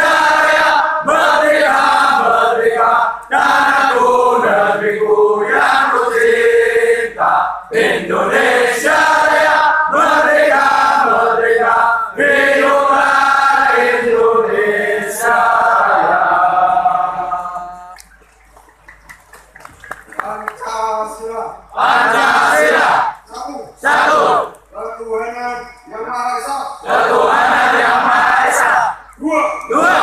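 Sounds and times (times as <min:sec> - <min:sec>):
men singing in unison: 0:00.0 - 0:18.0.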